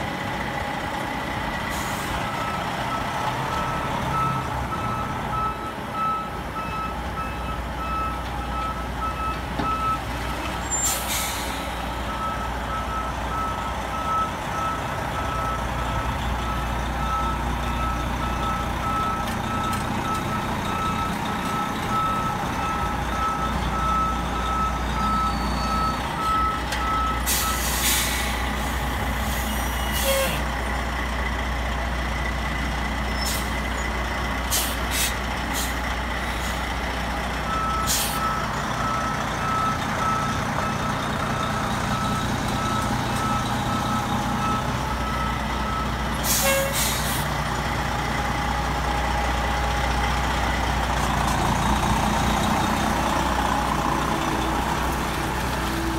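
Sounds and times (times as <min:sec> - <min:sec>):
reversing beeper: 0:01.7 - 0:30.4, 0:37.5 - 0:47.1.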